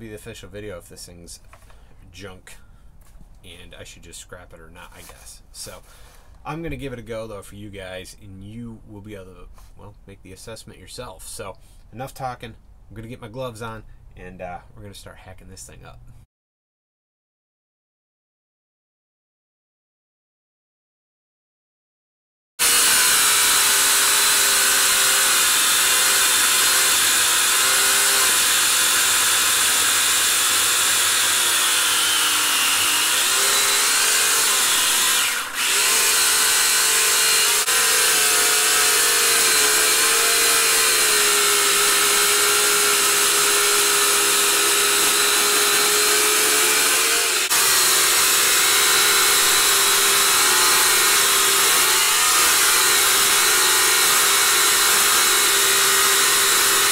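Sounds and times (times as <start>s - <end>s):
electric chainsaw cutting log: 22.6s - 56.9s.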